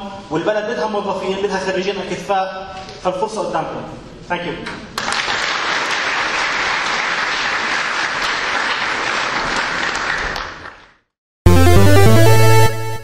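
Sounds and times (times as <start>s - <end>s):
audience applauding: 5.0s - 11.0s
electronic music jingle: 11.5s - 13.0s.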